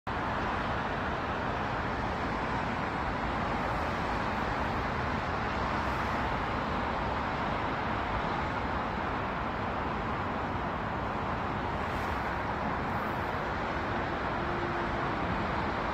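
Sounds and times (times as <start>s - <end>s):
distant road traffic hum: 0.1s - 15.9s.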